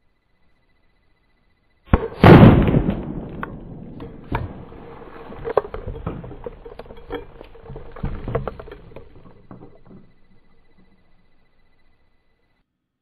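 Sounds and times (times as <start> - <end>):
shotgun blast: 1.9 - 4.7
sharp crack: 1.9 - 11.9
water and debris pattering: 2.6 - 12.0.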